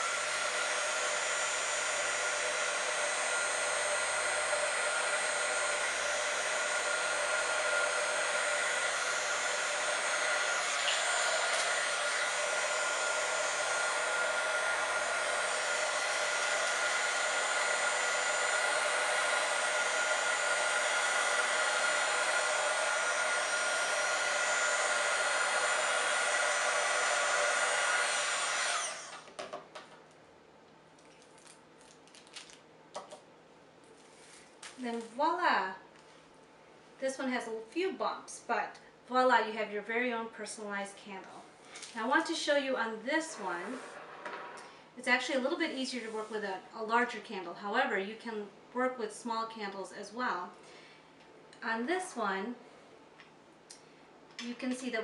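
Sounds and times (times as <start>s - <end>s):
heat tool whirring: 0.0s - 29.4s, 43.1s - 44.8s.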